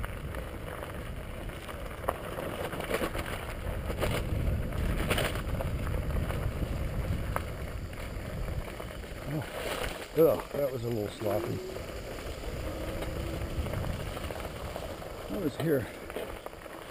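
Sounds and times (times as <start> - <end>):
bicycle tyre and frame noise: 0.0 - 16.9
wind on microphone: 3.2 - 16.5.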